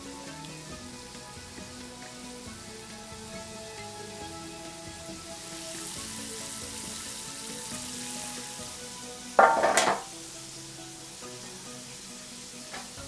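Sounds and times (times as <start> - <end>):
chicken sizzling in hot oil: 0.0 - 13.0
metal baking tray clattering: 9.4 - 10.1.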